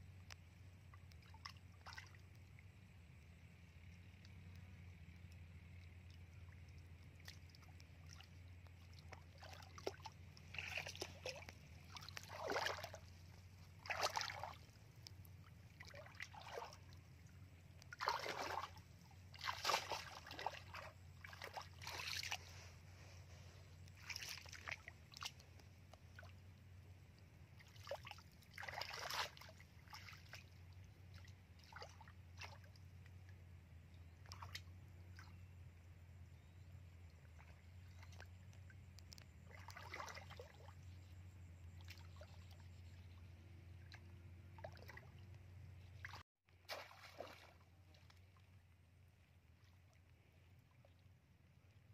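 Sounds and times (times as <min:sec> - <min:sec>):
low hum: 0:00.0 - 0:28.8
water splashing and sloshing: 0:00.1 - 0:51.9.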